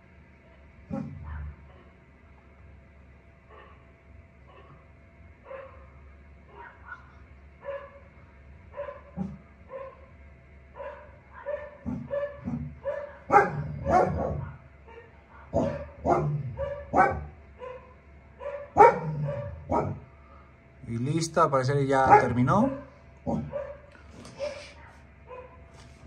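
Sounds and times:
dog barking: 0.9s - 2.0s, 3.5s - 3.9s, 4.5s - 4.8s, 5.4s - 8.1s, 8.7s - 10.1s, 10.7s - 20.1s, 22.0s - 25.6s.

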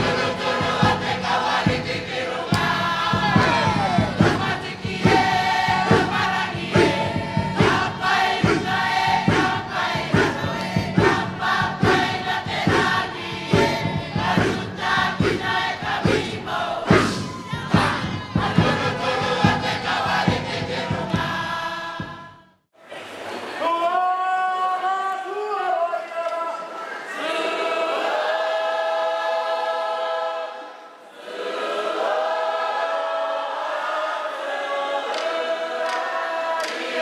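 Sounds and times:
strong regular drum beat: 0.0s - 22.5s
crowd singing in chorus: 0.0s - 22.6s, 26.9s - 37.0s.

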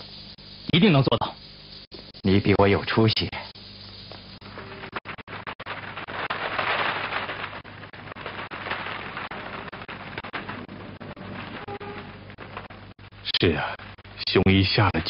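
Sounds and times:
pigeon wings flapping: 4.5s - 13.0s.

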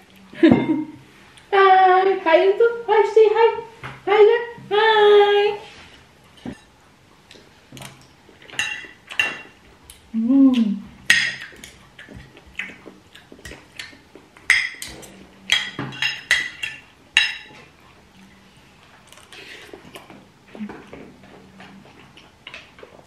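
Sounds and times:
cutlery clinking on a plate: 8.5s - 9.6s, 14.5s - 17.6s.

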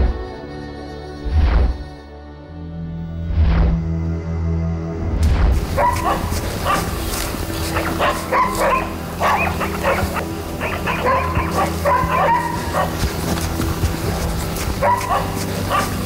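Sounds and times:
dogs barking: 5.6s - 16.0s.

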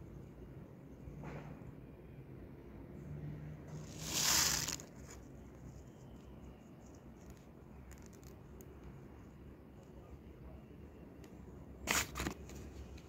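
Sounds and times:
fingers rustling in potting mix: 3.7s - 9.3s
paper rustling: 3.8s - 5.2s.

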